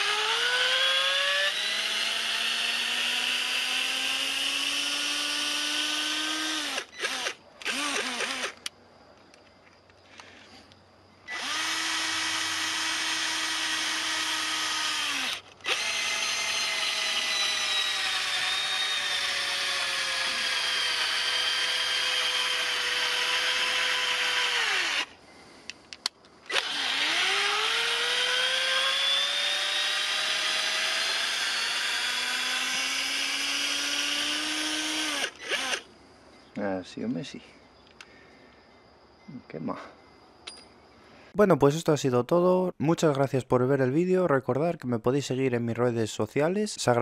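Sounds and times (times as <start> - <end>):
cordless drill whining: 0.0 - 8.7, 11.3 - 25.2, 26.5 - 35.9.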